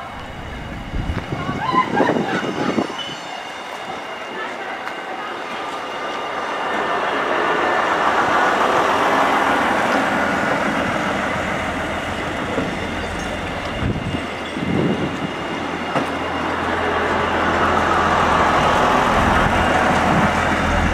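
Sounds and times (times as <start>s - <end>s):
train wheels on rails: 0.0s - 20.9s
diesel engines running: 16.3s - 20.9s.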